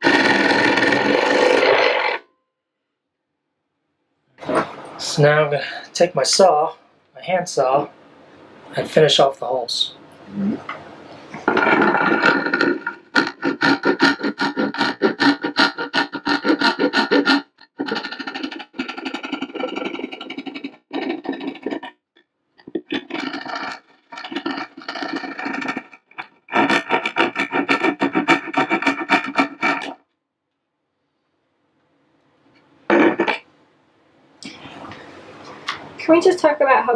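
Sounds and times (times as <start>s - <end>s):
hand saw cutting wall panel: 0.0s - 2.2s, 11.3s - 21.9s, 22.6s - 30.0s.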